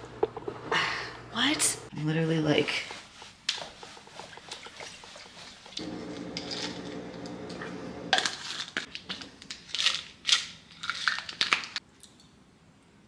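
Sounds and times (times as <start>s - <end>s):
steady low hum: 5.8s - 8.1s
pills rattling in bottle: 8.3s - 11.8s.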